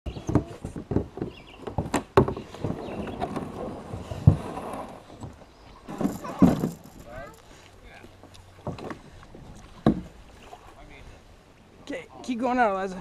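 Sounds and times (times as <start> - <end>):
hull scraping over gravel: 2.4 - 7.4
hollow knocks on plastic kayak: 9.8 - 10.1.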